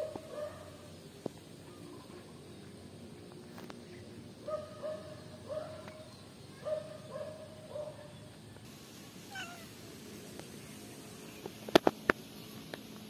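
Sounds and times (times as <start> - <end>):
cat meowing: 9.3 - 9.7.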